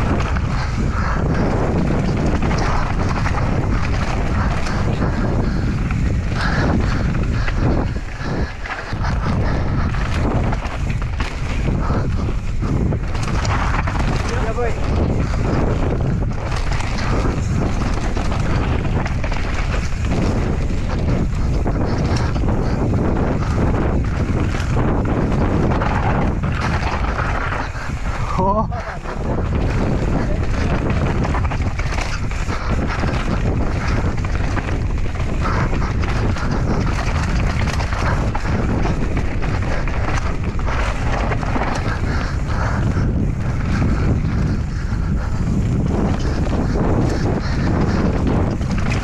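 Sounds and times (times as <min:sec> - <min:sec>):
bike rattling over rough ground: 0:00.0 - 0:49.0
tyres rolling over dirt: 0:00.0 - 0:49.0
wind buffeting microphone: 0:00.0 - 0:49.0.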